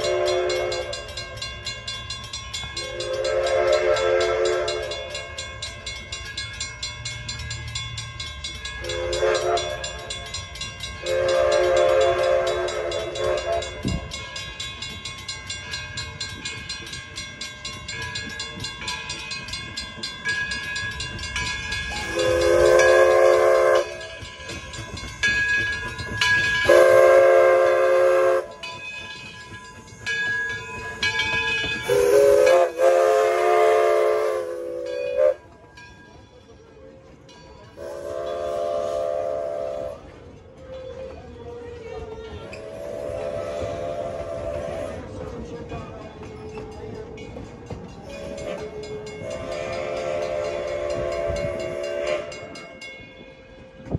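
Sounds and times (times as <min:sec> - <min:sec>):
steam locomotive whistle: 0:00.0 - 0:01.4, 0:02.8 - 0:05.4, 0:08.8 - 0:10.2, 0:11.0 - 0:14.1, 0:21.9 - 0:24.6, 0:26.4 - 0:28.7, 0:31.8 - 0:35.5, 0:37.7 - 0:41.6, 0:42.4 - 0:45.2, 0:48.0 - 0:52.8
steady ringing beat: 0:00.0 - 0:35.1.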